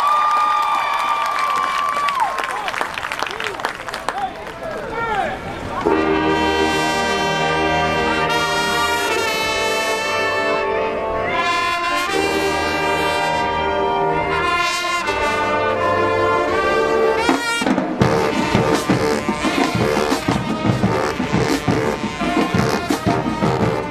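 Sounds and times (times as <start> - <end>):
brass section holding chords: 5.8 - 23.9
fast hard drum strokes: 17.2 - 23.9.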